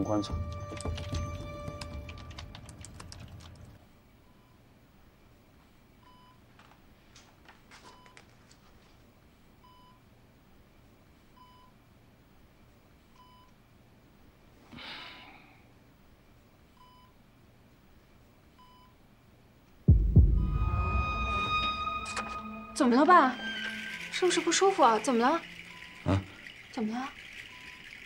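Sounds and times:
patient monitor beeping softly: 0:13.2 - 0:13.5, 0:16.8 - 0:17.2, 0:18.6 - 0:19.0.

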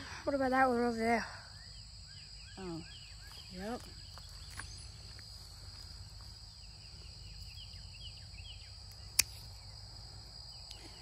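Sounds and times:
insects droning: 0:00.0 - 0:11.0
pruning shears snipping a branch: 0:08.9 - 0:09.5.

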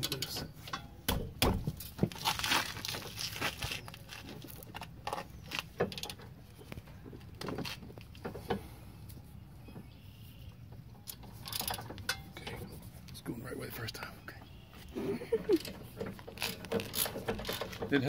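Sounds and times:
light handling and rustling: 0:01.6 - 0:09.9, 0:14.8 - 0:18.0.

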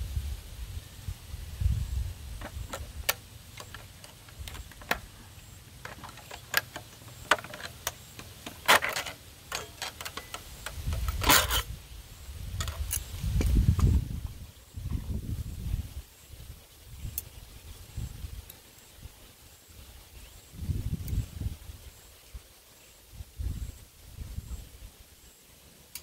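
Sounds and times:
metallic scraping rasp: 0:05.8 - 0:11.7.

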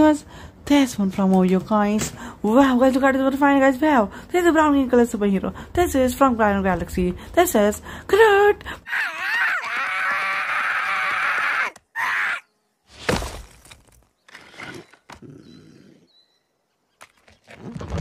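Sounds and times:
creature squealing: 0:08.9 - 0:12.5.

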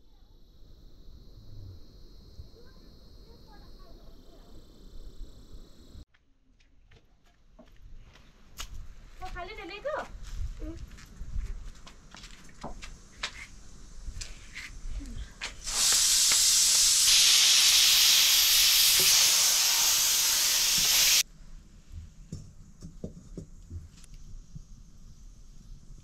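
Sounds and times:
sizzling in a hot pan: 0:13.5 - 0:21.3.

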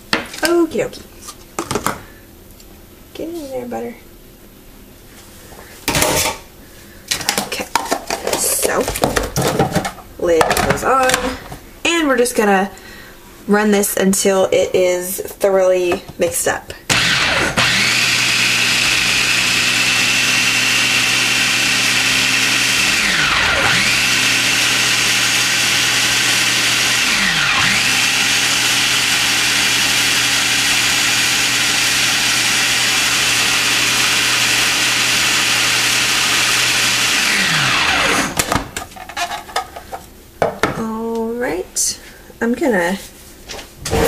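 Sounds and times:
food processor motor whine: 0:16.9 - 0:38.8.

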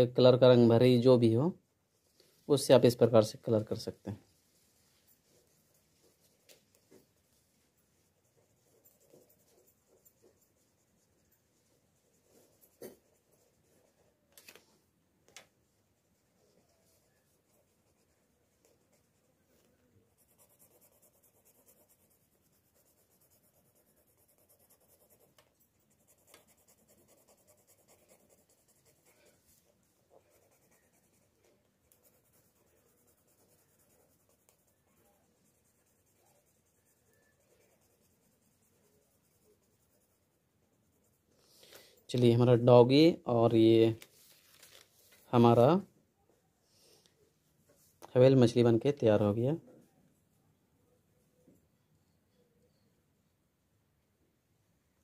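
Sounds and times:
pen scratching on paper: 0:08.0 - 0:14.2, 0:20.1 - 0:41.3.

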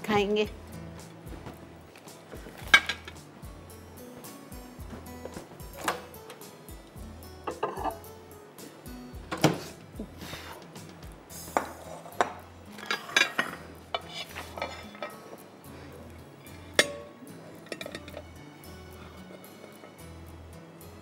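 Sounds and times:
soft background music: 0:00.0 - 0:21.0
dishes and utensils clinking: 0:02.0 - 0:03.2, 0:05.3 - 0:06.5, 0:07.4 - 0:08.2, 0:11.4 - 0:15.5, 0:16.4 - 0:20.0.

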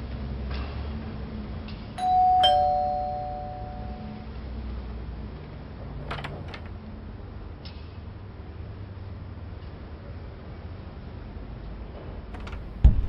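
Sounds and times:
two-tone doorbell chime: 0:02.0 - 0:04.3.

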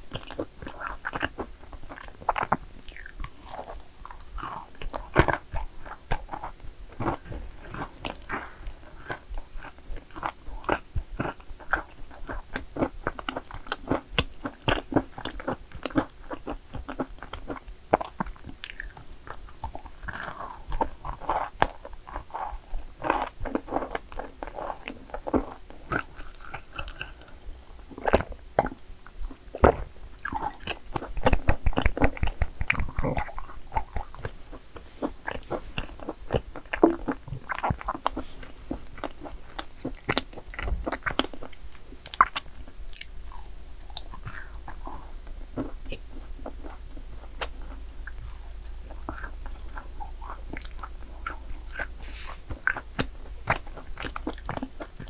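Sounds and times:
chewing crunchy cookies: 0:00.0 - 0:55.0.

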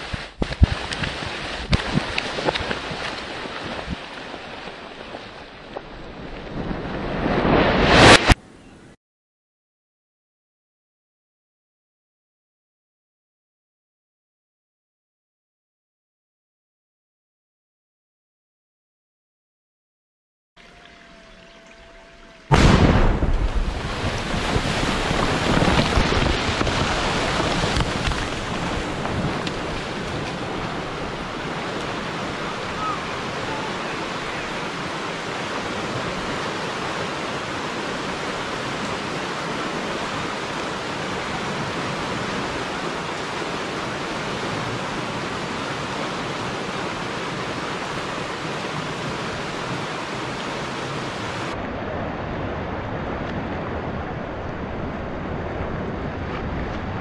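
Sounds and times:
debris falling: 0:22.5 - 0:31.9
water rushing through dam: 0:22.5 - 0:56.6.

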